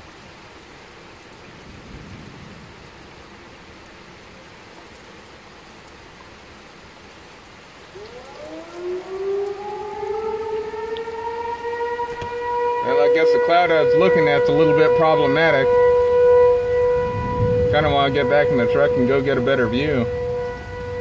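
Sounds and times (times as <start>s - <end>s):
steady rain falling: 0.0s - 21.0s
tornado warning siren winding up: 7.7s - 21.0s.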